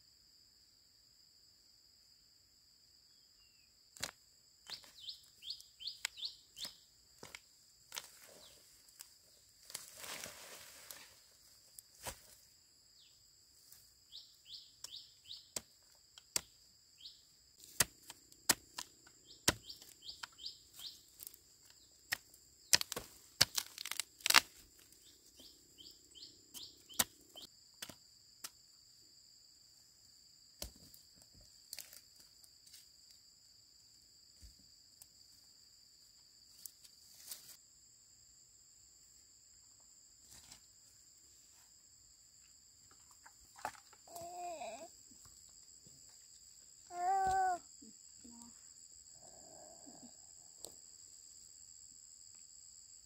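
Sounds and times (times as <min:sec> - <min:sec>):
rustle: 0:04.0 - 0:14.2, 0:34.3 - 0:37.9, 0:39.0 - 0:50.8
sharp cracks and snaps: 0:22.1 - 0:24.9.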